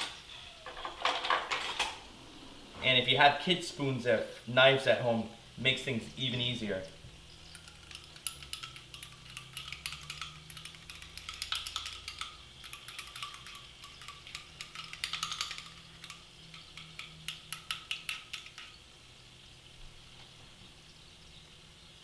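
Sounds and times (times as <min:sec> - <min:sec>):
metal utensil clicking on packets: 0:07.5 - 0:18.8.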